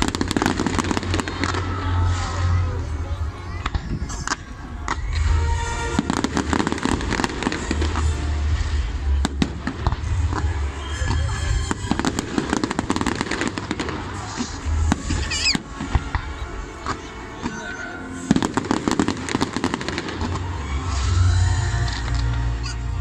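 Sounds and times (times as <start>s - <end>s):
fireworks bursting and crackling: 0.0s - 23.0s.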